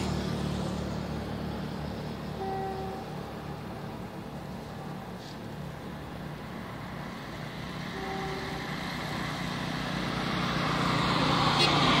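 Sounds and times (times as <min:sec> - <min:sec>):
locomotive engine hum: 0:00.0 - 0:12.0.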